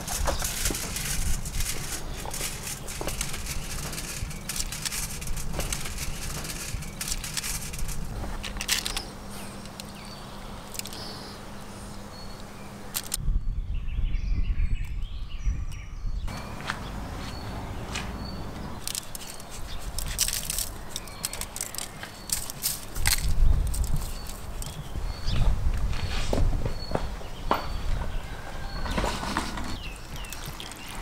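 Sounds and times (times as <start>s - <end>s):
foil crinkling and clicking: 0.0s - 9.0s, 18.8s - 24.8s, 29.8s - 31.0s
birds chirping faintly: 0.0s - 31.0s.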